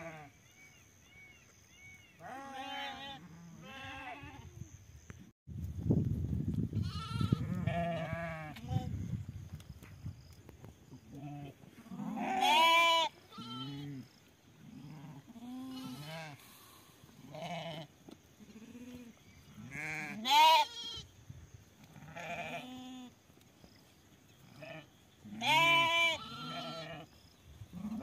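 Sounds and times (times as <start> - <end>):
sheep and goats bleating: 0.0 - 0.4, 2.1 - 4.5, 6.8 - 8.9, 11.1 - 21.1, 21.8 - 23.2, 24.4 - 27.1, 27.7 - 28.0.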